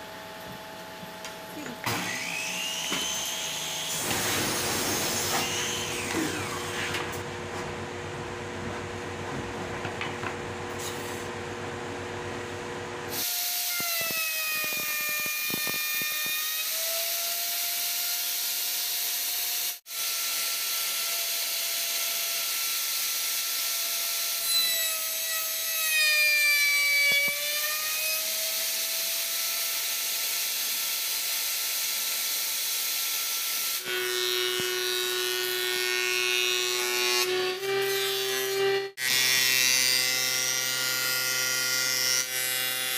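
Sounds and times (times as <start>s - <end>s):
planer low hum: 0.4s - 13.2s.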